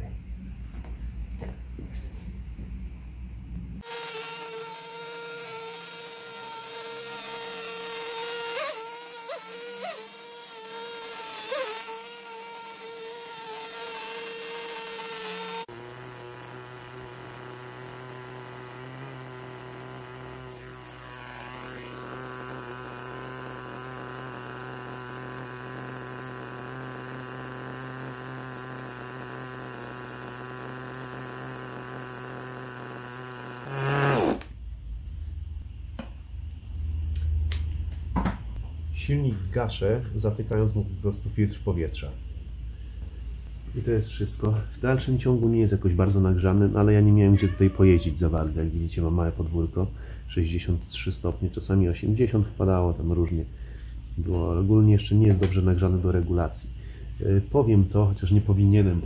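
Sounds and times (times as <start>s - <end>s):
small nitro engine whining: 3.8s - 34.6s.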